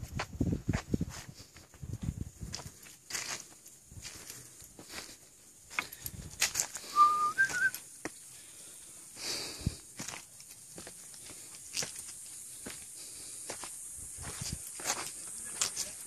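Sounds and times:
footsteps and scuffs: 0.0 - 8.2, 10.0 - 16.0
two-note whistle: 6.9 - 7.8.

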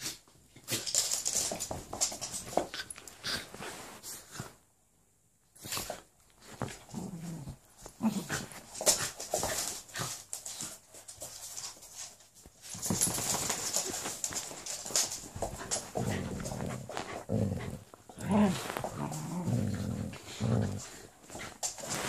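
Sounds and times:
dog claws scuffling on wooden floor: 0.5 - 4.5, 5.7 - 22.0
dogs growling and whining: 16.0 - 21.1.

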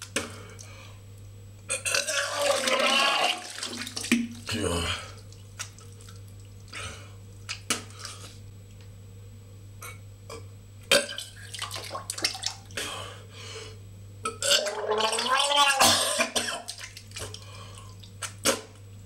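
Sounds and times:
man retching and spitting: 1.7 - 3.5, 9.8 - 11.4, 14.3 - 16.8, 18.2 - 18.8
splashes into toilet water: 2.3 - 4.5, 11.5 - 12.6
man breathing hard: 12.8 - 13.8.

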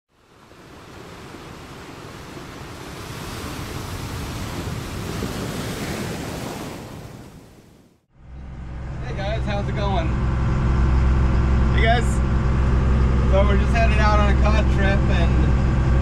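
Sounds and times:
sea waves and wind: 0.1 - 8.1.

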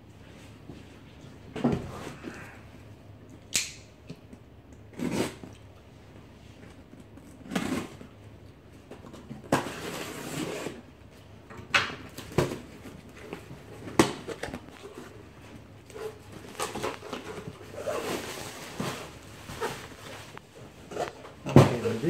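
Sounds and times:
cardboard rustling scrape: 9.5 - 10.9, 15.9 - 22.0.

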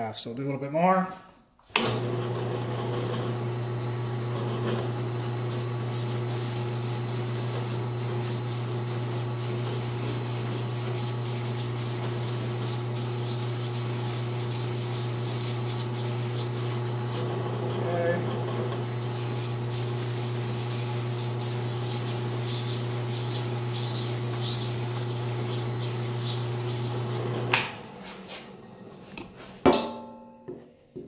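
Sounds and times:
drill press motor hum: 1.8 - 29.2
sandpaper rubbing hiss: 19.3 - 24.7.

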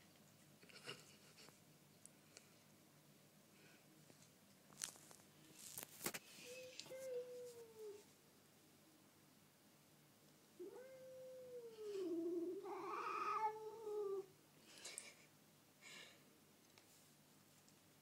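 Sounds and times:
cat yowling: 10.6 - 14.3.

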